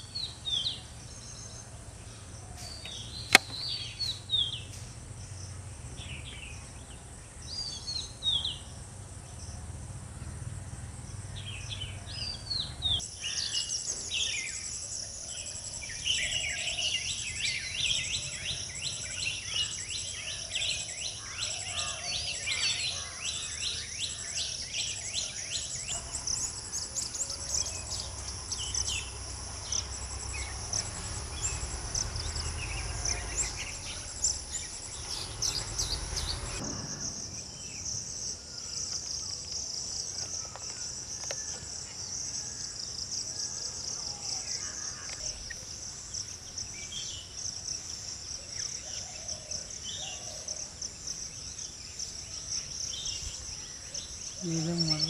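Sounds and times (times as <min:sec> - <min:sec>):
bird calls: 0:00.0 - 0:08.7, 0:11.2 - 0:42.6, 0:43.4 - 0:55.0
crickets chirping: 0:00.0 - 0:55.0
low rumble: 0:27.7 - 0:38.7.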